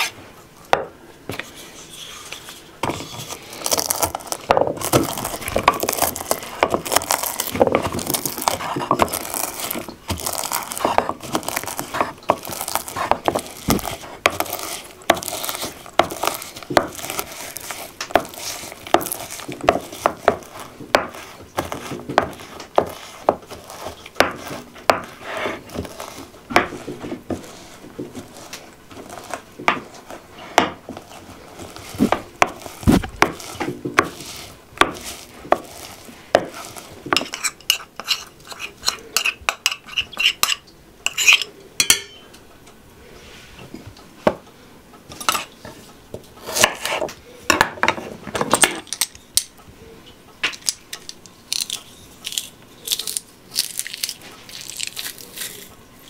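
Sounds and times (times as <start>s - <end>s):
wooden pestle pounding in mortar: 3.7s - 28.3s, 31.6s - 38.2s
metal spoon scraping and clinking: 35.8s - 42.2s.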